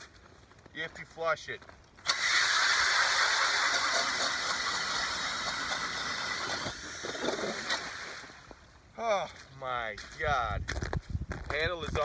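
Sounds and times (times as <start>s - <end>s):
ice auger churning water and slush: 2.1s - 8.5s.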